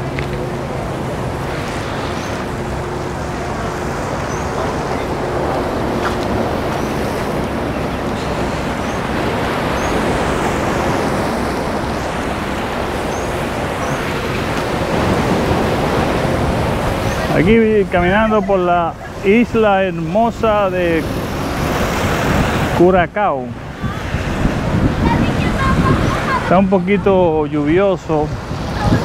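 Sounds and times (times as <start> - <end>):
sea waves: 0.0 - 29.0
wind: 0.0 - 29.0.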